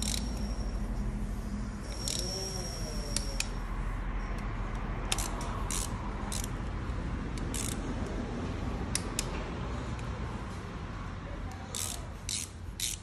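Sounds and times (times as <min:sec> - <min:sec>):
ratchet wrench clicking: 0:00.0 - 0:00.8, 0:01.8 - 0:03.6, 0:04.4 - 0:08.2, 0:11.7 - 0:13.0.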